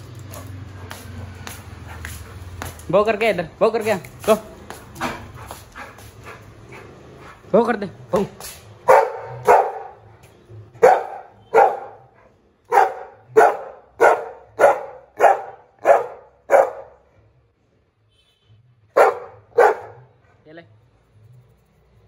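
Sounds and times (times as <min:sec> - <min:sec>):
dog barking: 0:08.8 - 0:10.0, 0:10.8 - 0:17.0, 0:18.9 - 0:20.2.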